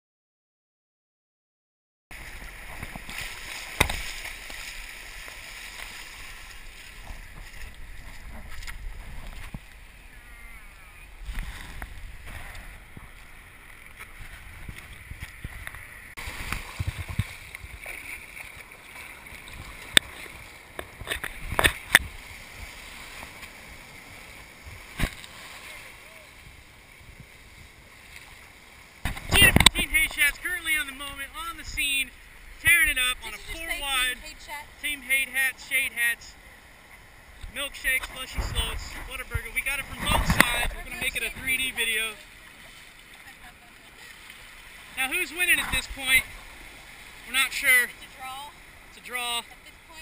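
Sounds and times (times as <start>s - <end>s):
surf washing up beach: 2.1s - 50.0s
wind on microphone: 6.1s - 17.9s, 38.1s - 41.5s.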